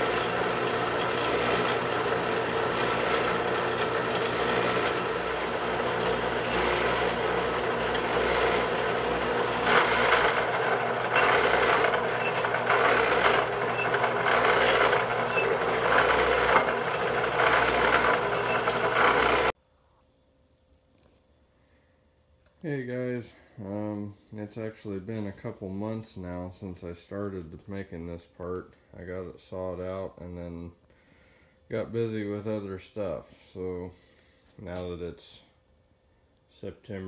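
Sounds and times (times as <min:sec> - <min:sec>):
bandsaw blade rasping through steel: 0:00.0 - 0:19.5
bandsaw motor hum: 0:00.0 - 0:19.6.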